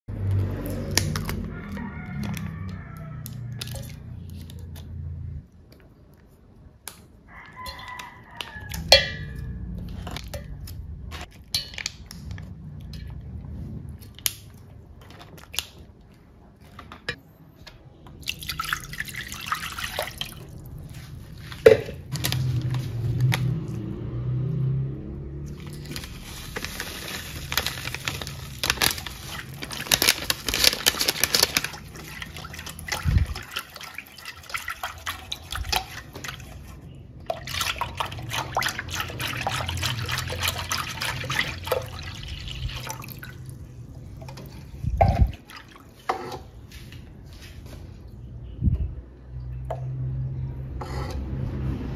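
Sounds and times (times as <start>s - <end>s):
liquid pouring and sloshing: 0.1s - 4.9s, 18.0s - 48.2s
plastic cups clicking in metal pan: 6.8s - 13.1s, 25.6s - 36.6s
whisk stirring liquid: 29.2s - 43.3s.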